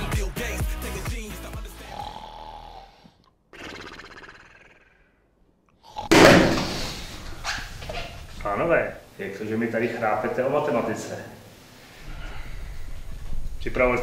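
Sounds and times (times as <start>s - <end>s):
background music: 0.0s - 2.4s
man snoring: 1.4s - 5.1s, 5.8s - 7.0s.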